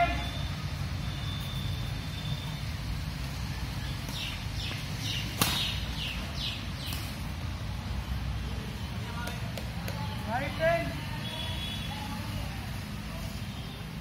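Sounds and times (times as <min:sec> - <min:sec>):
racket hitting shuttlecock: 0:05.4 - 0:05.7.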